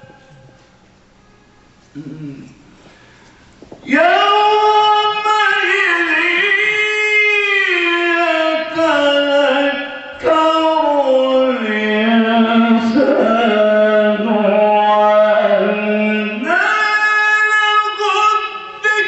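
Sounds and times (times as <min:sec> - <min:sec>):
man reciting melodically: 0:03.8 - 0:19.0.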